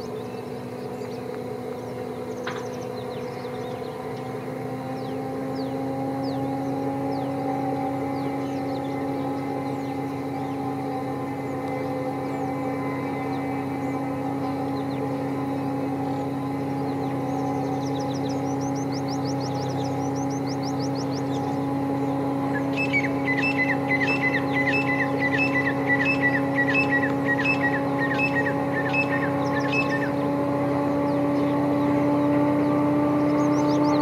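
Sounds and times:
bird calling: 0:00.0 - 0:34.0
diesel locomotive engine droning: 0:00.0 - 0:34.0
high bird twittering: 0:16.1 - 0:31.9, 0:32.6 - 0:34.0.

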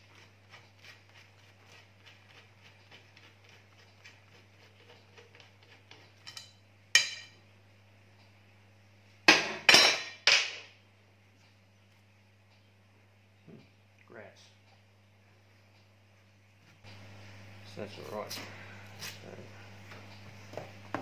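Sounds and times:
metal clanks on steel bench: 0:06.2 - 0:07.4.

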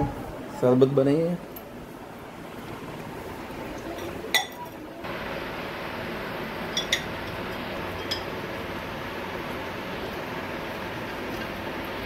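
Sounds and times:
steel kitchenware clinking: 0:03.9 - 0:04.8, 0:06.7 - 0:07.2, 0:07.9 - 0:08.4.

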